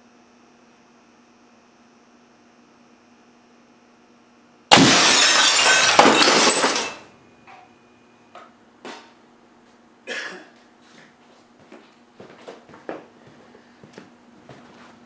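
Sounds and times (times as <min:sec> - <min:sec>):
glass fragments clinking: 0:04.7 - 0:07.1
picture tube imploding and shattering: 0:04.7 - 0:07.1.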